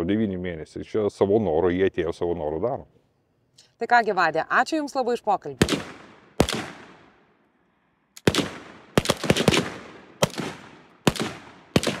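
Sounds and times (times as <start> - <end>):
gunshots with echo: 5.6 - 7.2, 8.2 - 12.0.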